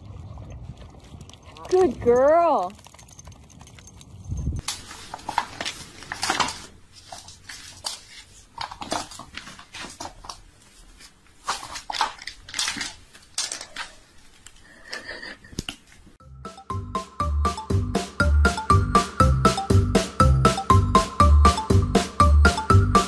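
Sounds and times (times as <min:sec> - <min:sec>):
scratchy rustling and scraping: 0:04.6 - 0:14.5.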